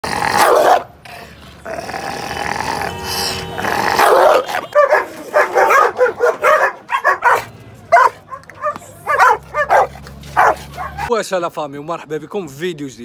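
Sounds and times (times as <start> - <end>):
dog barking: 0.4 - 0.9, 3.9 - 11.1.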